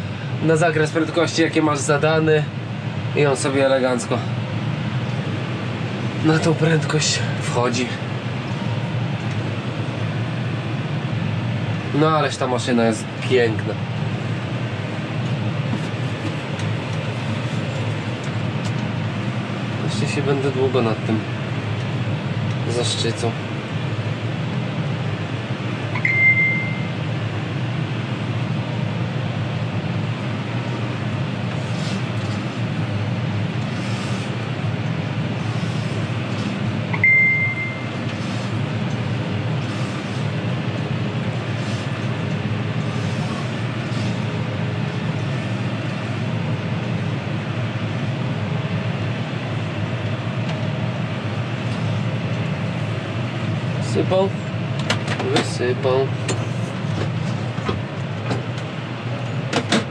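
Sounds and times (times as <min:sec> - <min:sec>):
tractor diesel engine running: 0:00.0 - 0:59.9
short high beeps: 0:26.0 - 0:27.0, 0:36.9 - 0:37.9.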